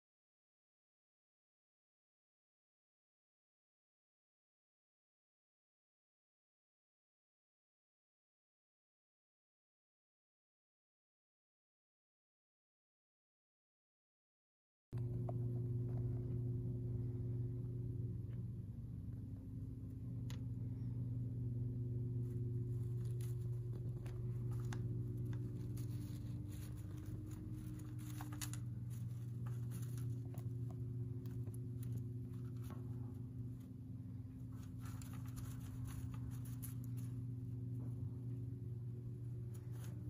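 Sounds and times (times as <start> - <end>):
low electrical hum: 15.0 - 40.0
hamster rustling in bedding: 21.9 - 40.0.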